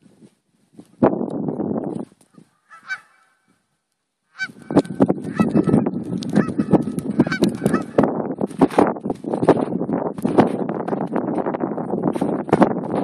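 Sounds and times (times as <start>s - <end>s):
geese honking: 2.6s - 3.5s, 4.3s - 8.0s.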